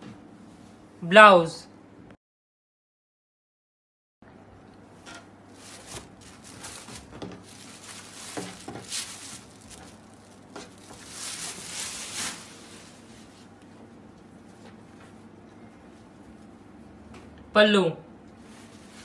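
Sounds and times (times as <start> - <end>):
fabric rustling: 5.5 - 13.5, 18.4 - 19.0.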